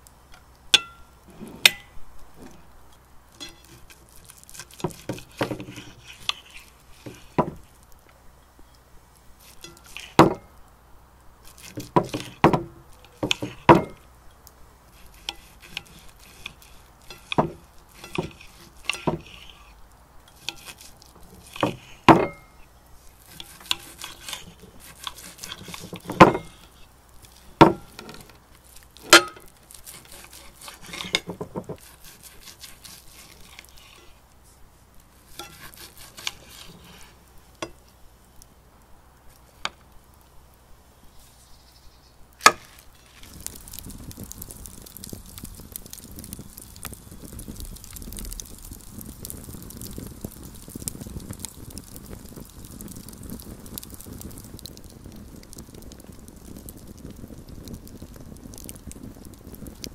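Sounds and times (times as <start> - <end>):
knife scraping on plate: 3.4 - 3.9, 20.3 - 22.4, 23.3 - 26.6, 29.9 - 34.2, 35.3 - 37.1
knife sawing steak: 15.0 - 19.7, 20.4 - 22.0, 23.3 - 26.0, 29.8 - 34.1, 35.3 - 37.1.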